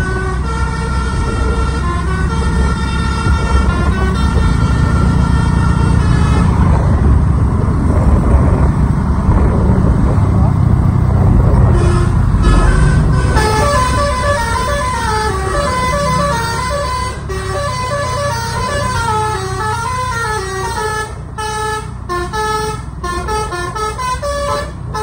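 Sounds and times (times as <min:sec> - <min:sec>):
musical air horn melody: 0:00.0 - 0:06.7, 0:11.7 - 0:25.0
bus rumble: 0:00.0 - 0:25.0
road traffic: 0:00.0 - 0:25.0.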